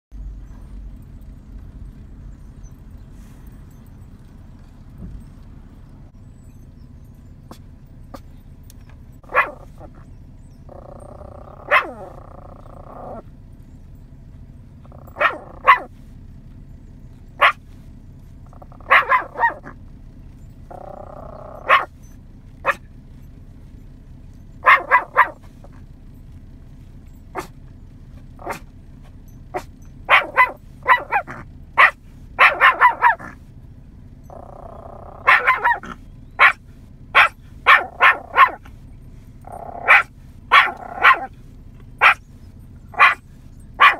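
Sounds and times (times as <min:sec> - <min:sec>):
small dog barking: 0:09.2 - 0:10.1, 0:10.7 - 0:13.3, 0:14.8 - 0:16.0, 0:17.4 - 0:17.8, 0:18.5 - 0:19.8, 0:20.7 - 0:22.9, 0:24.6 - 0:25.8, 0:27.3 - 0:27.6, 0:28.4 - 0:28.7, 0:29.5 - 0:33.4, 0:34.3 - 0:38.8, 0:39.4 - 0:42.3, 0:42.9 - 0:43.9.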